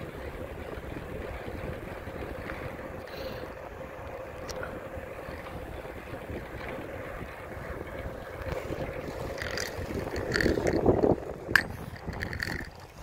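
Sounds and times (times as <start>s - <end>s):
wind buffeting microphone: 0.0s - 13.0s
sharp clicks and rattles: 8.4s - 13.0s.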